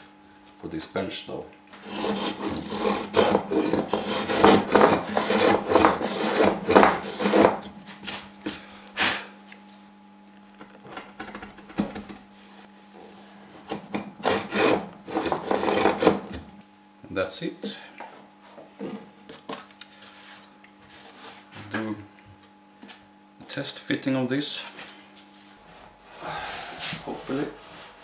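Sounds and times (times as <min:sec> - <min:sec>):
router plane rasping wood: 0:01.8 - 0:07.7, 0:13.7 - 0:16.4.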